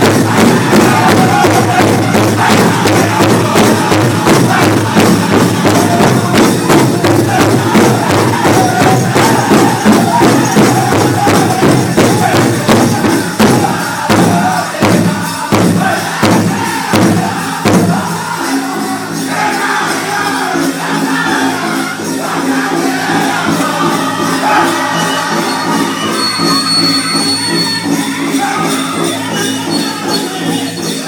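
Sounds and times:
bass drum steady beat: 0.0 - 18.1
men singing in high voices: 0.0 - 31.0.

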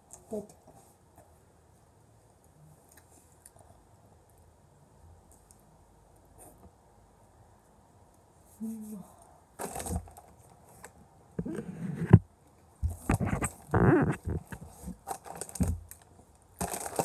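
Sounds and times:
hands rustling against phone: 11.4 - 12.2, 12.8 - 15.1.

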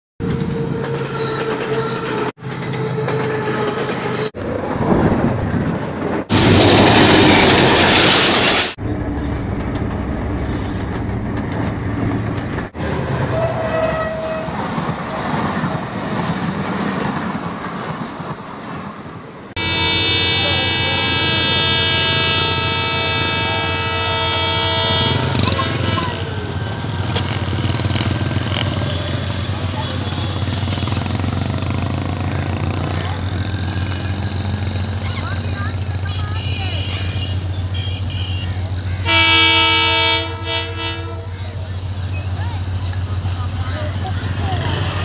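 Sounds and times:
diesel locomotive horn: 0.2 - 4.3, 13.0 - 14.7, 19.6 - 27.0, 36.0 - 41.5
diesel trains passing: 0.2 - 45.0.

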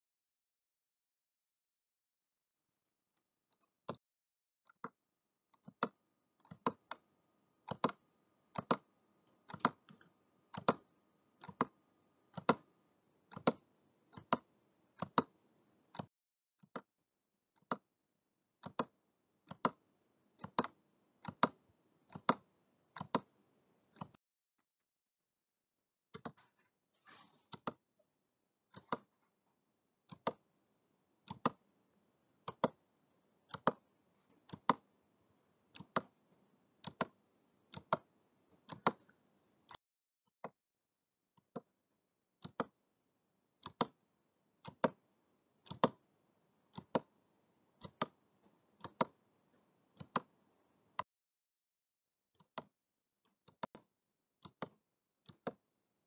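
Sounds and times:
computer mouse clicking: 4.7 - 5.0, 5.6 - 7.0, 7.6 - 12.7, 13.3 - 16.9, 17.6 - 17.9, 18.6 - 19.8, 20.4 - 23.3, 23.9 - 24.2, 26.2 - 27.8, 28.7 - 29.1, 30.1 - 30.4, 31.2 - 31.7, 32.4 - 32.8, 33.5 - 34.9, 35.7 - 39.8, 42.4 - 42.8, 43.6 - 44.0, 44.6 - 45.0, 45.6 - 46.0, 46.7 - 47.1, 47.8 - 51.1, 53.4 - 53.8, 54.4 - 55.6.

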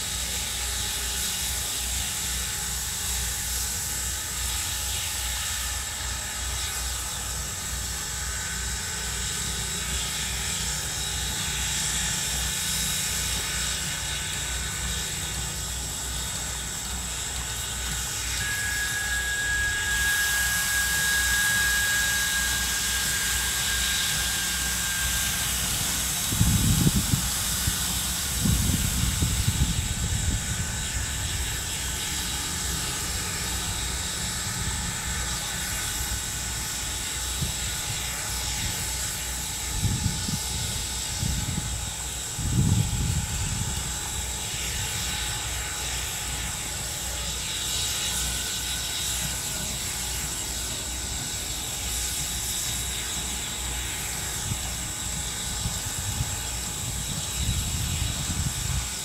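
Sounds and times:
steam hissing: 0.0 - 59.0
thin high tone: 18.0 - 25.8.

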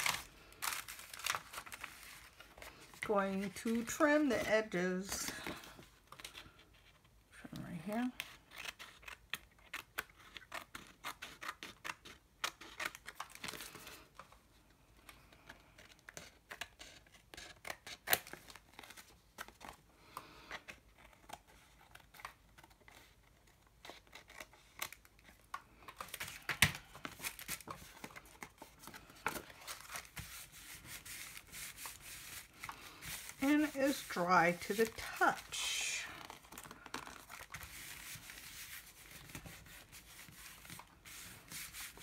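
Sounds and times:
paper rustling on plastic sheet: 0.0 - 6.4, 25.9 - 42.0.

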